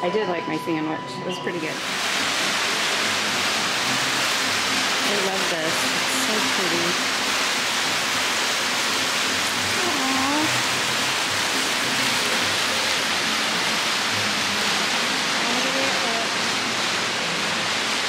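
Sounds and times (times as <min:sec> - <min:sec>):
loud rushing hiss: 0:01.7 - 0:18.0
faint voices: 0:09.7 - 0:10.7.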